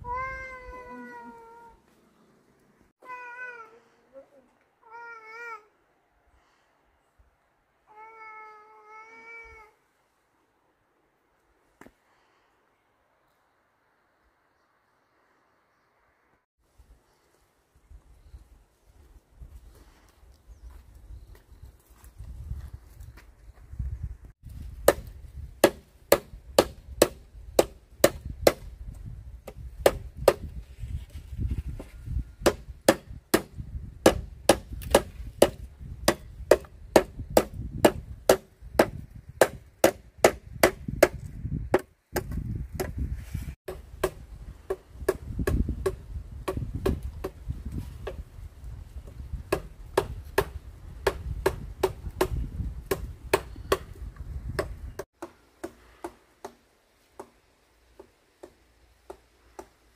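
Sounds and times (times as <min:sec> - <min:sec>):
chopping blows on wood: 0:24.6 - 0:28.7, 0:29.4 - 0:30.5, 0:31.8 - 0:43.0, 0:43.7 - 0:48.2, 0:49.4 - 0:56.6.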